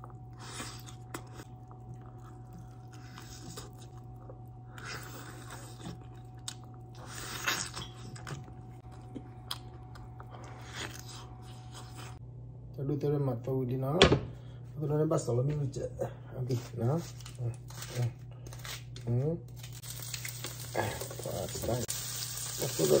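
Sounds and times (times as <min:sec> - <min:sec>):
person chewing and biting: 0:00.0 - 0:12.2
low electrical hum: 0:00.0 - 0:23.0.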